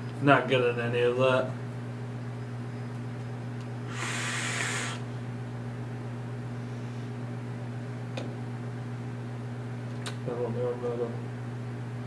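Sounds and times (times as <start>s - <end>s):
steady low hum: 0.0s - 12.0s
vape hiss: 3.9s - 5.1s
small click: 9.9s - 10.2s.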